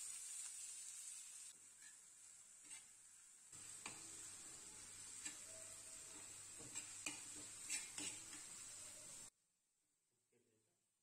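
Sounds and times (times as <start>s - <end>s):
onions sizzling in a pan: 0.0s - 9.3s
spatula tapping and scraping pan: 2.6s - 2.9s, 3.6s - 8.6s.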